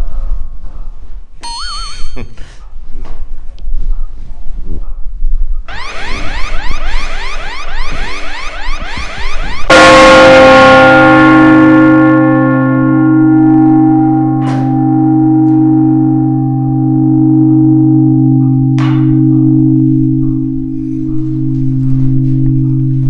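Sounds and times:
large bell ringing: 9.7 - 23.0.

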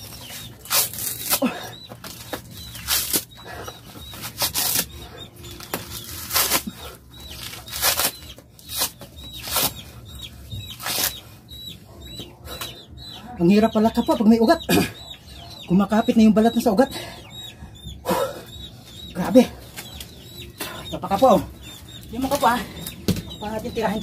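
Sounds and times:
coconut husk tearing: 0.2 - 3.4, 4.1 - 9.8, 10.8 - 11.2.

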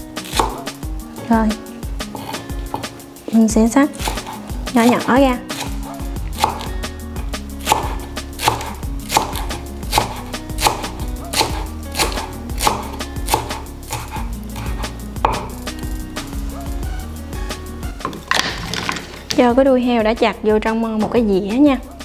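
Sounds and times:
knife chopping leaves: 0.2 - 0.7, 3.9 - 6.9, 7.6 - 15.6.

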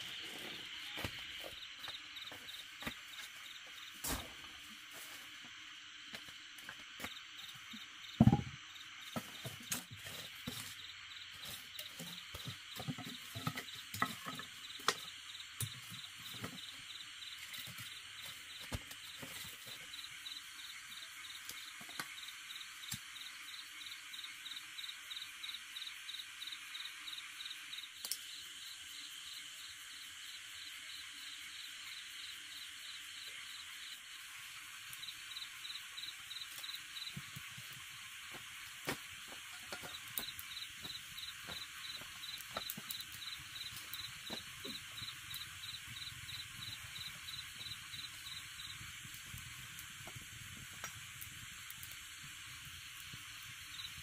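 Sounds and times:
insects chirping: 0.0 - 54.0
thump: 8.2 - 8.5.

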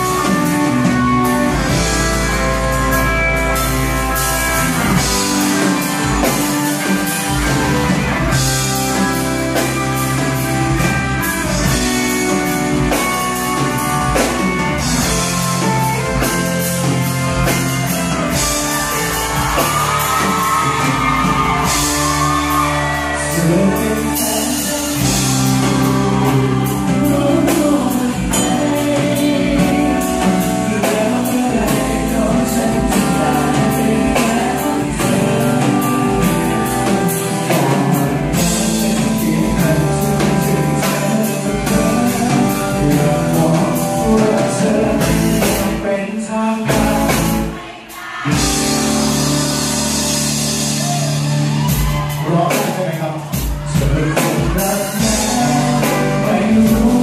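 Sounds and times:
live band playing: 0.0 - 57.0
man singing into a microphone: 22.4 - 48.7, 52.2 - 57.0.

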